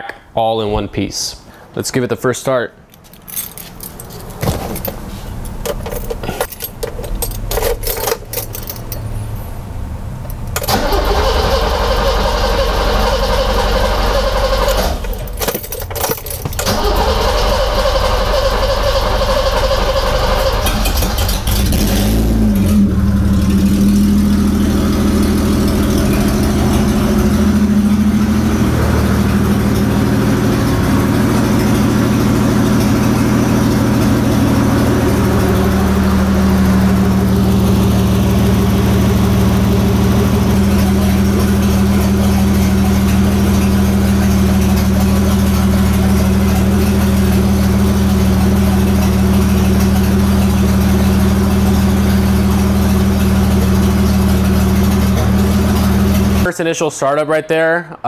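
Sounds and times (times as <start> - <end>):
car engine idling: 3.3 - 56.5
starter motor cranking: 10.3 - 22.8.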